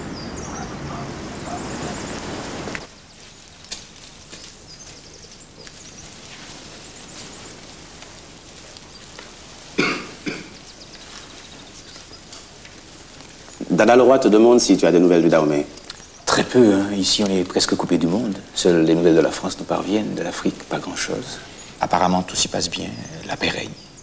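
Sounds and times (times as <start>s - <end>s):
faint high chirping: 0.0s - 7.8s
person coughing: 9.8s - 10.6s.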